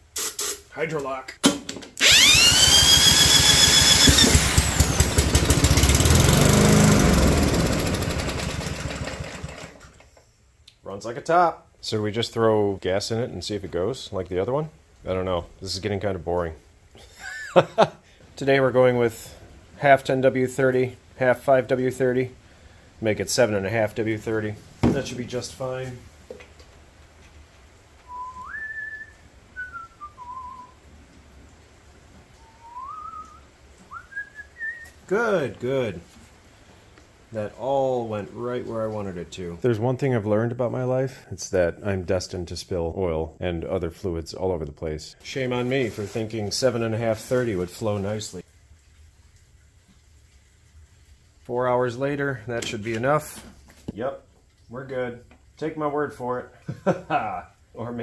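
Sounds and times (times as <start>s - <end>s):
cordless drill whining: 2.0s - 9.8s
small engine running: 2.0s - 10.0s
person whistling a tune: 28.1s - 30.8s, 32.4s - 34.9s.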